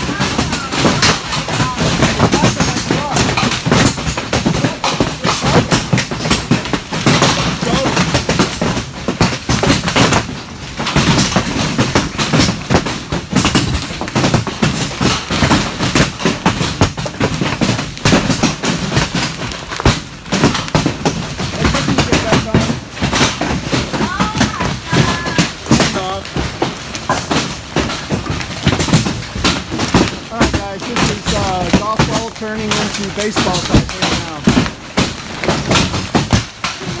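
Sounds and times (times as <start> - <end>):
hail pounding on metal roof: 0.0 - 37.0.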